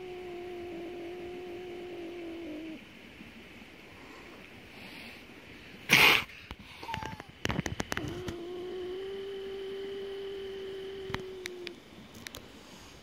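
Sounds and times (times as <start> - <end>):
cat hissing: 5.9 - 7.1.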